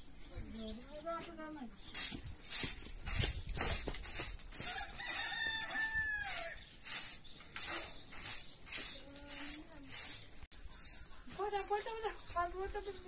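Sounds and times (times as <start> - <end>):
straw broom sweeping earth floor: 1.3 - 13.0
rooster crowing: 4.6 - 6.6.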